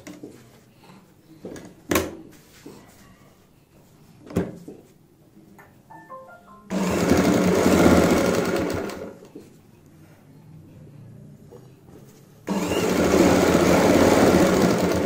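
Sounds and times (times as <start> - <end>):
sewing machine stitching: 6.7 - 9.2, 12.5 - 15.0.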